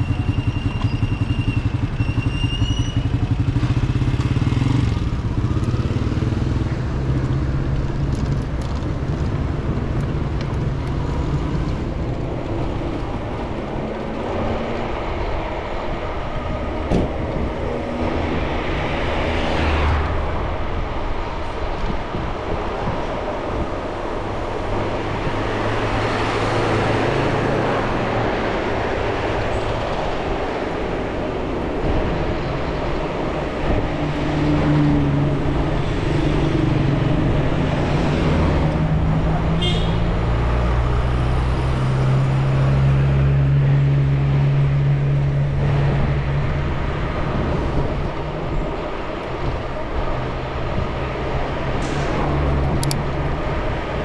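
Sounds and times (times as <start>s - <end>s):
short high squeak: 0.0s - 3.2s
car engines humming: 0.0s - 54.0s
sharp clicks: 52.7s - 53.0s.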